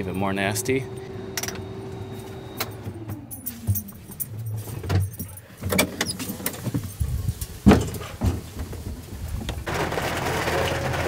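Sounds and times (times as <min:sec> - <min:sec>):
motor humming winding down: 0:00.0 - 0:04.7.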